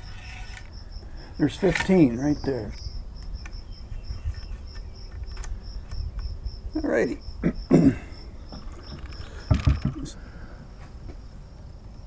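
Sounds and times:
insects chirping: 0.0s - 12.0s
low knocks and thumps: 8.5s - 10.2s.

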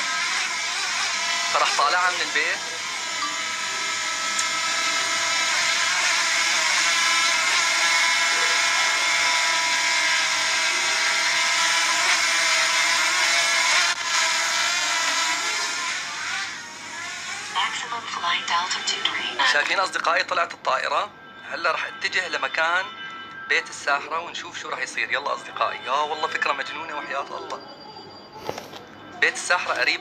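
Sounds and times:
quadcopter drone propellers whining: 0.0s - 19.7s.

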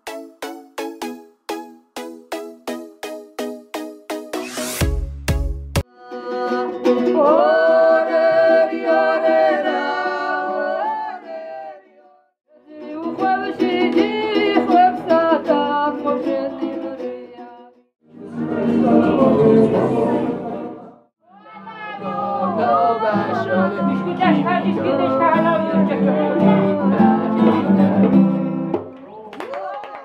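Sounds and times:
strummed lute: 5.8s - 11.2s, 12.6s - 20.6s, 21.6s - 28.8s
woman singing: 5.9s - 11.4s, 12.5s - 17.7s, 21.3s - 27.9s.

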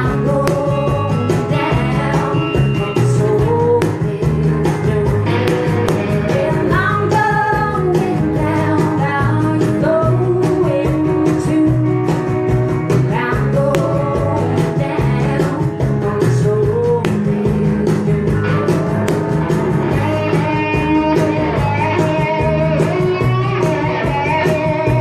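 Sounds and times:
woman singing: 0.0s - 18.4s
cajon beat: 0.0s - 25.0s
electric guitar: 0.0s - 25.0s.

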